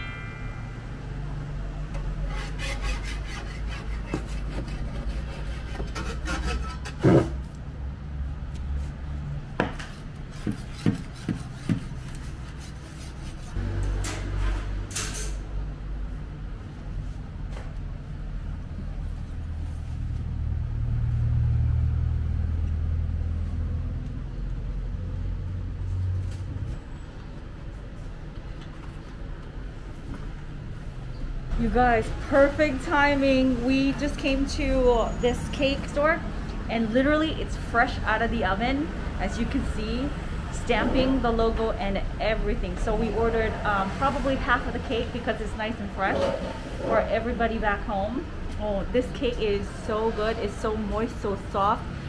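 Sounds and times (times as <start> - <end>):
steady low hum: 0.0 - 2.9.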